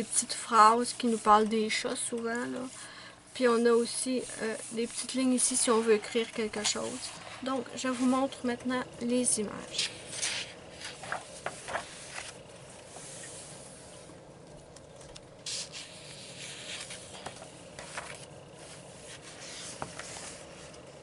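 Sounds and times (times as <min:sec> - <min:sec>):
palms rubbing on paper: 0:00.0 - 0:08.4, 0:09.5 - 0:13.9, 0:15.4 - 0:20.9
paper pages rustling: 0:09.7 - 0:13.6, 0:14.6 - 0:20.9.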